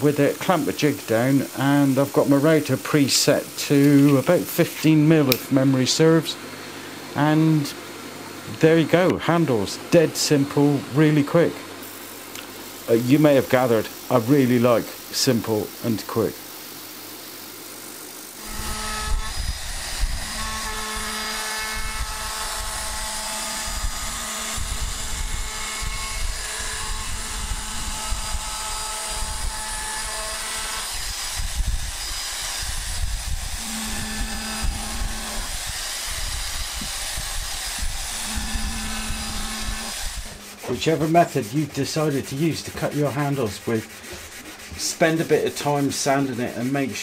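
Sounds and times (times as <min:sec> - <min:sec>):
router cutting hardwood: 0:18.2 - 0:46.6.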